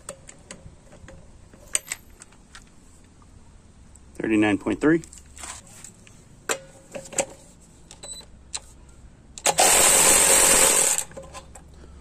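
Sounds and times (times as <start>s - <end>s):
powered ratchet running: 9.4s - 11.1s.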